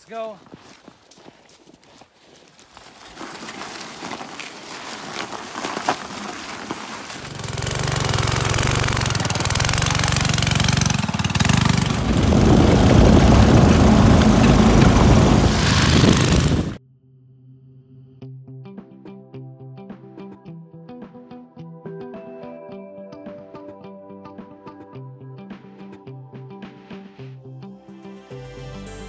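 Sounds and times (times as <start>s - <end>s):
go-kart engine running: 5.2s - 16.8s.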